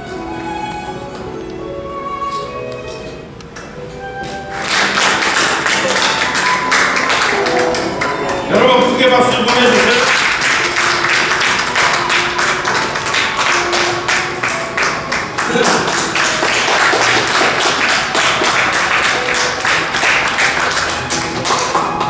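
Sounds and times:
upbeat music with percussive beat: 5.2 - 22.0.

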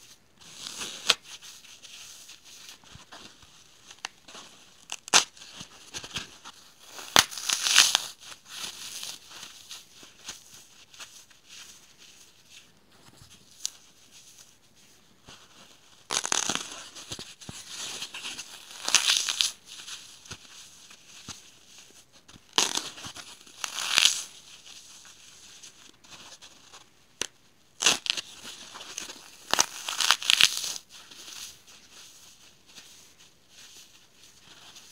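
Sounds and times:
foam crumbs scratching: 27.8 - 34.9.

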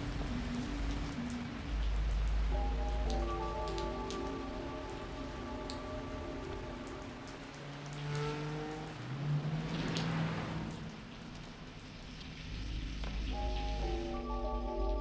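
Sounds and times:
sustained synthesizer chords: 0.0 - 8.0, 13.3 - 15.0
steady rain: 0.0 - 15.0.

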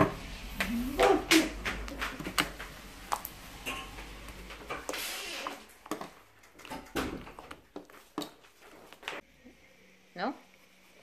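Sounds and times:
slime squelching by hand: 0.3 - 9.2.

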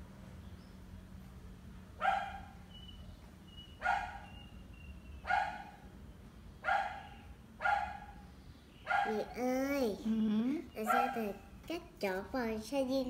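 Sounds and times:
dog barking: 2.0 - 2.6, 3.8 - 4.4, 5.2 - 5.8, 6.6 - 8.2, 8.8 - 9.3, 10.8 - 11.4.

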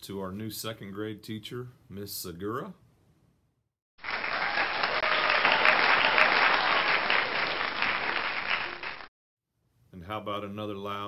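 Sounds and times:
applause: 4.0 - 9.1.

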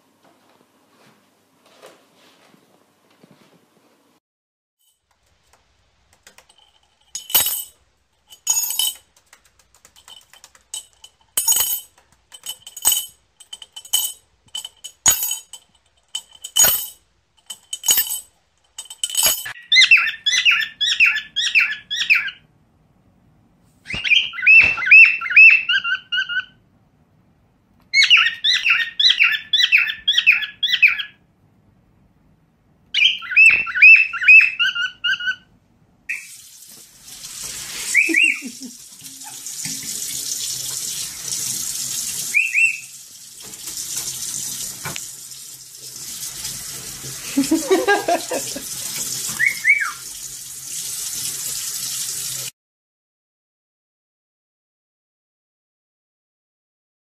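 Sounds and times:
cockatiel chirping: 19.6 - 22.4, 23.9 - 26.6, 27.9 - 31.2, 33.0 - 35.5, 37.9 - 38.5, 42.3 - 42.9, 49.4 - 50.0.

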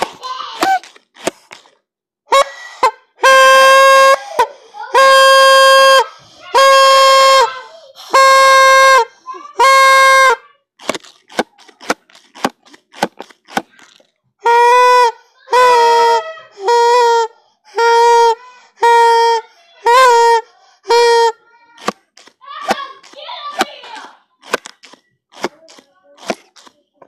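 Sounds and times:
party horn blasts: 0.0 - 1.7, 2.3 - 26.8
short clicks and knocks: 21.8 - 26.8.

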